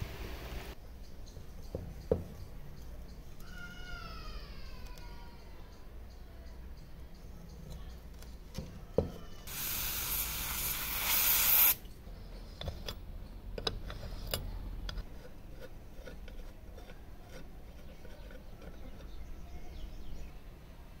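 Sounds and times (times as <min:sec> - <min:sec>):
aerosol can spraying: 0:09.5 - 0:11.8.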